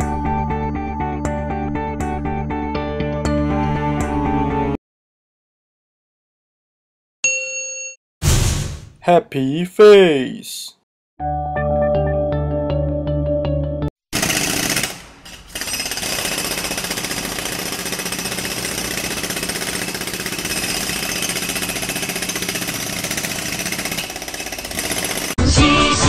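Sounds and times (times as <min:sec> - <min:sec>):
rapid mechanical hammering: 0:14.1 - 0:25.4.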